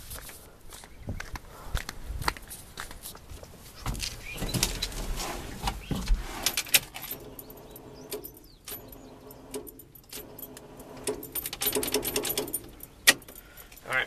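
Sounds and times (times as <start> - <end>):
starter buzzing and clicking: 4.3 - 13.4.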